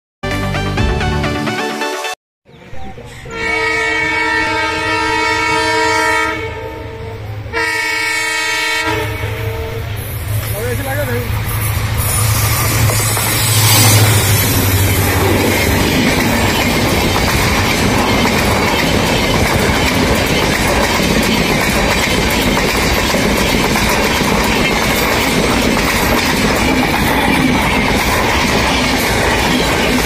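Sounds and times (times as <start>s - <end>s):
locomotive engine hum: 4.8s - 30.0s
train wheels clattering on rails: 10.2s - 30.0s.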